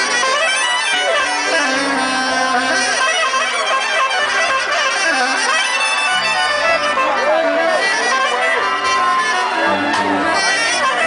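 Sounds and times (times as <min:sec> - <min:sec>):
soprano saxophone melody: 0:00.0 - 0:11.0
electric bass: 0:01.0 - 0:03.1, 0:05.0 - 0:11.0.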